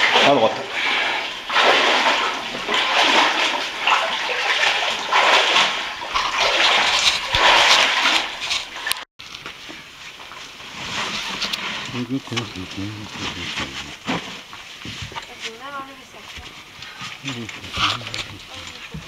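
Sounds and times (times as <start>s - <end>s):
water splashing and sloshing: 0.0s - 19.0s.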